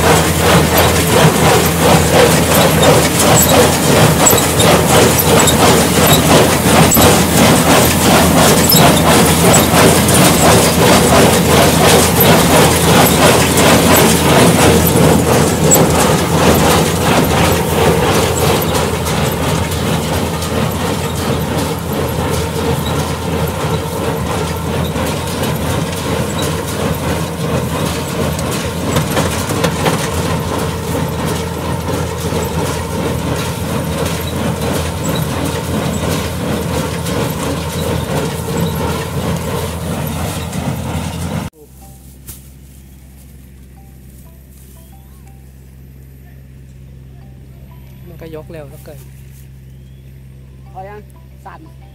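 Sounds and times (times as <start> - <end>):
square baler clattering: 0.0 - 41.5
machine drone: 0.0 - 51.9.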